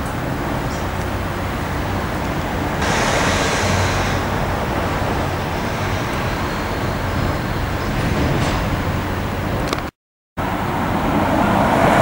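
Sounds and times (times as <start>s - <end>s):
outdoor rushing noise: 0.0s - 9.8s
bright hiss: 2.8s - 7.2s.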